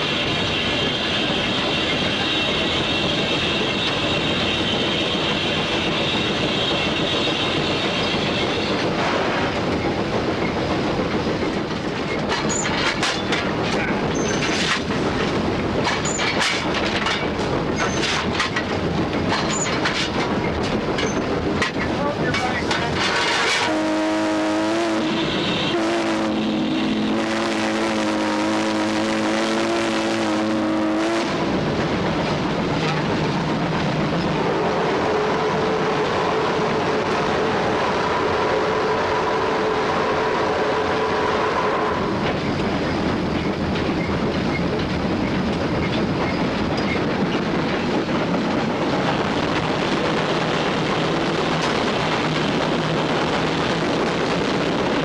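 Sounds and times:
steam locomotive running: 0.0 - 55.0
wheels on rails: 5.8 - 23.7, 31.2 - 55.0
steam whistle blast: 23.5 - 31.3.

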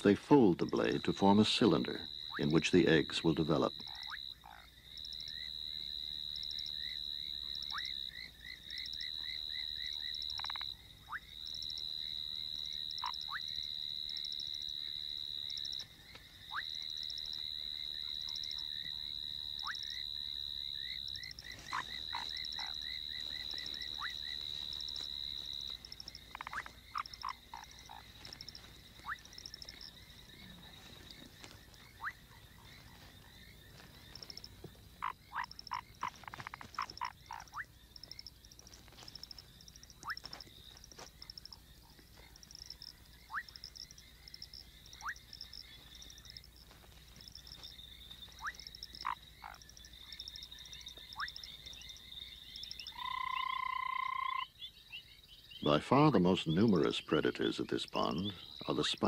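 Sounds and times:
high continuous frog trill: 0.0 - 59.0
rapid pulsed frog calls: 0.0 - 59.0
sharp plinking frog calls: 0.0 - 59.0.

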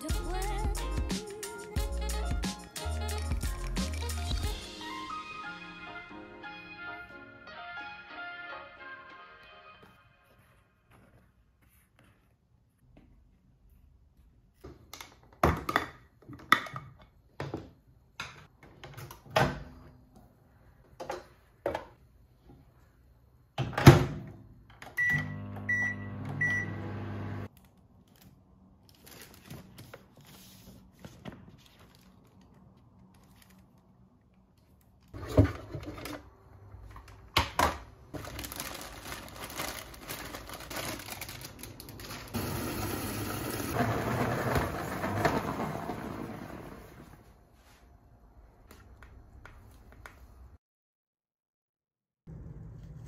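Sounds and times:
microwave oven hum: 25.0 - 27.5.

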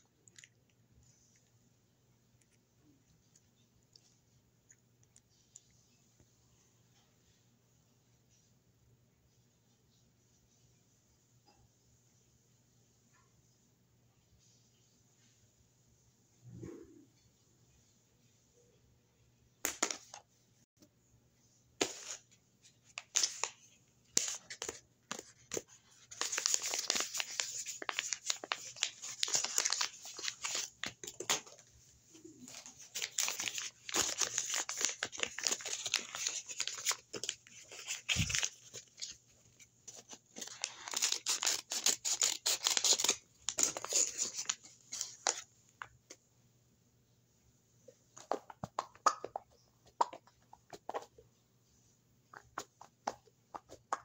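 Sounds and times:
paper crinkling and tearing: 23.0 - 31.6, 32.4 - 45.4.

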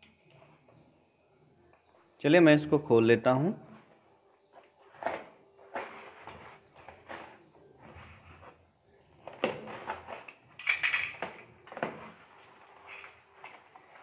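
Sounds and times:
packaging rustling and crinkling: 4.5 - 10.5, 11.1 - 14.0.

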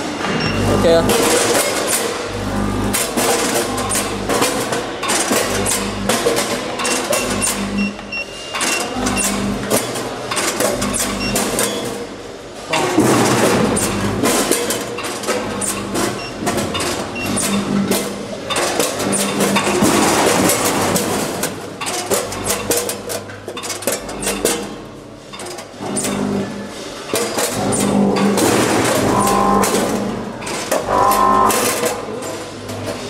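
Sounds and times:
steady machine hum: 0.0 - 8.1, 27.5 - 33.0
hopper gates opening and shutting: 0.2 - 33.0.

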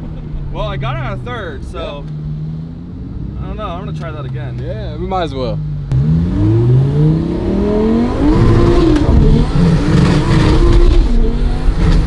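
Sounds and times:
car engine revving hard: 5.9 - 12.0.

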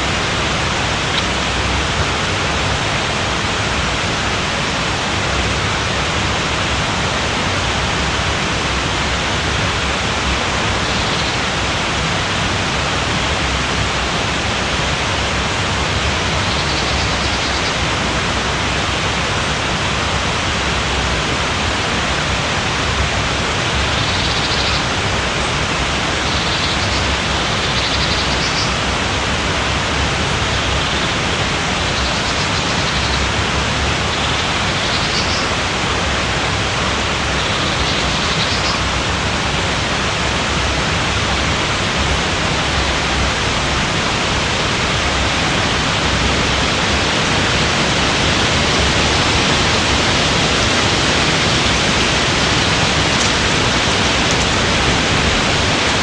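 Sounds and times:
river water running over rocks: 0.0 - 56.0.

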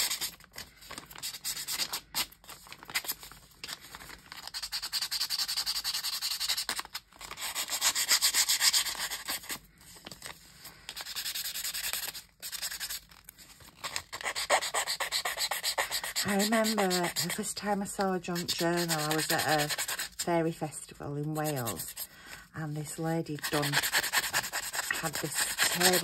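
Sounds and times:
emery board filing paper edges: 14.2 - 17.4, 18.4 - 20.2, 23.4 - 26.0.

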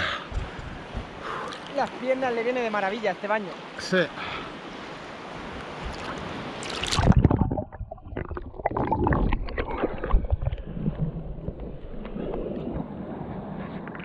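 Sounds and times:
splash into water: 5.8 - 11.5
underwater gurgling: 5.8 - 14.0
underwater clicks and knocks: 6.9 - 12.8.

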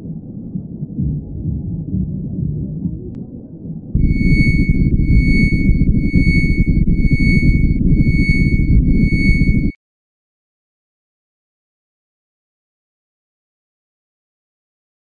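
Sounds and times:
high electronic tone: 4.0 - 9.8.

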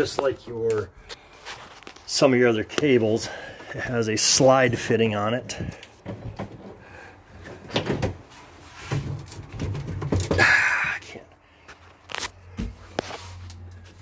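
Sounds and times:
scraping rustle: 8.2 - 10.2, 11.8 - 14.0.

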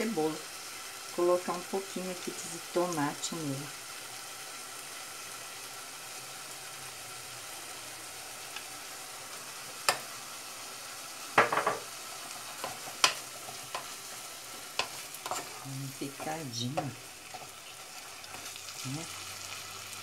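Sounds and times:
food sizzling in a pot: 0.0 - 20.0
spoon knocking against dishes: 11.4 - 11.9
wooden spoon scraping and stirring: 12.1 - 18.6.

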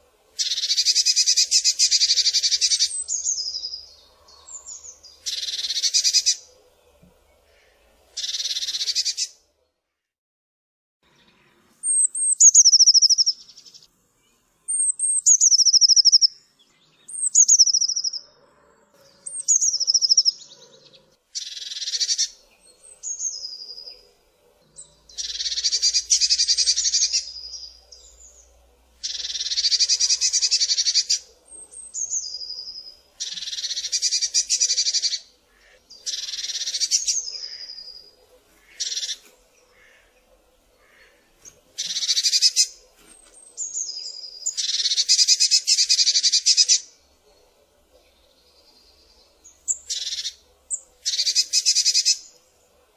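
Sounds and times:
harsh rasping bird calls: 0.0 - 9.4, 11.0 - 13.9, 14.7 - 52.9
bird singing high trills: 11.2 - 13.8, 14.6 - 18.3, 19.1 - 24.0, 24.8 - 35.3.

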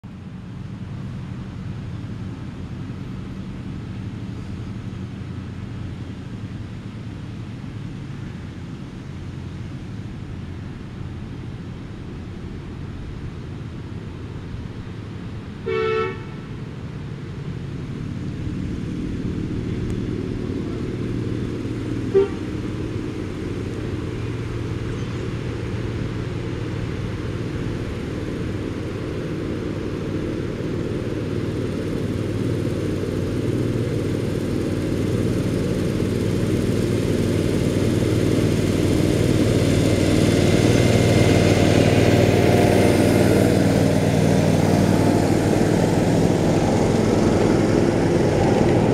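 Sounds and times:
train horn toot: 15.6 - 16.6, 22.0 - 22.6
miniature train running: 42.0 - 48.9.

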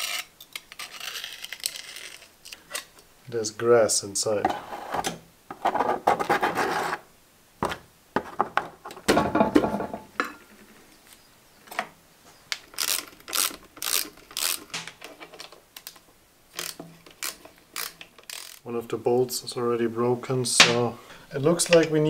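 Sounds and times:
socket ratchet clicking: 12.8 - 14.8, 16.6 - 18.6.

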